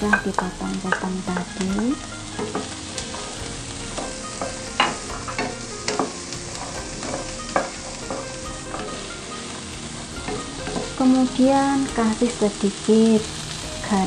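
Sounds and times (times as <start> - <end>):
vegetables sizzling in a wok: 0.0 - 14.0
spatula tapping and scraping pan: 0.1 - 9.3, 10.2 - 11.0.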